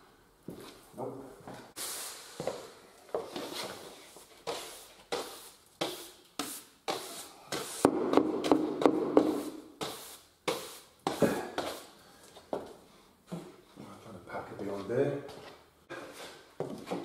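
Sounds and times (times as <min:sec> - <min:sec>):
brush sweeping floor: 0:01.7 - 0:07.9, 0:09.2 - 0:12.0.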